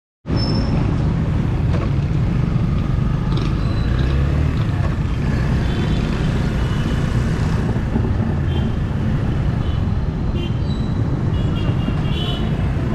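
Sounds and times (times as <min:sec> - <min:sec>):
street traffic: 0:00.2 - 0:12.9.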